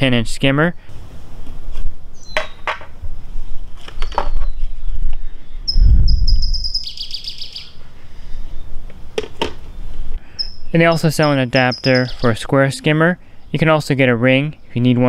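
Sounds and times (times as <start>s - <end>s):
bird trilling: 5.7s - 7.8s, 10.3s - 12.4s
plastic lids clicking and knocking: 9.2s - 9.6s.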